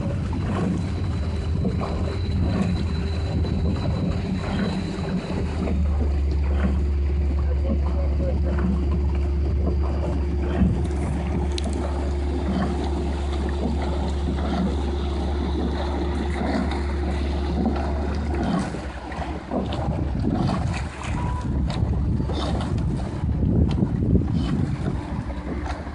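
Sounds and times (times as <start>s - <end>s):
outboard motor running: 0.0s - 25.9s
water noise: 0.0s - 25.9s
wind on microphone: 0.0s - 25.9s.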